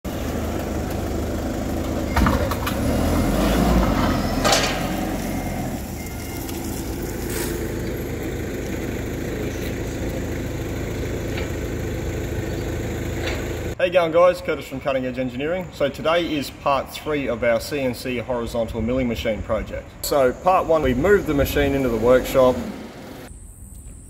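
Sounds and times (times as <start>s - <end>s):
forklift engine running: 0.0s - 13.8s, 20.3s - 23.3s
metal bin clunking on concrete: 3.7s - 5.1s.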